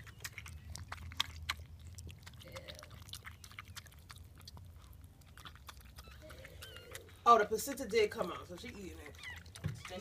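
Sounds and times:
dog chewing clicks: 0:00.0 - 0:10.0.

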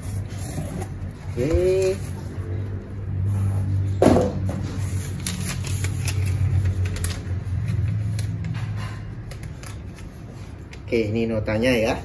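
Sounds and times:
packaging crinkling and rustling: 0:04.5 - 0:10.9.

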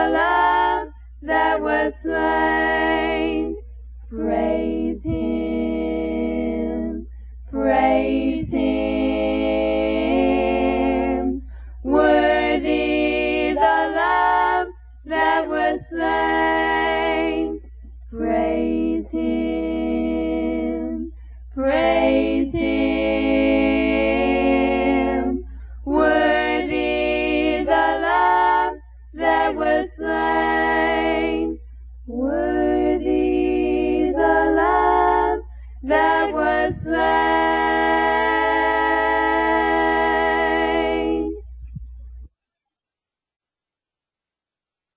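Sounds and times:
vocal group singing in harmony: 0:00.0 - 0:41.8
steady low hum: 0:00.0 - 0:42.3
short breaths: 0:11.4 - 0:11.8, 0:25.5 - 0:25.8, 0:35.5 - 0:35.8.

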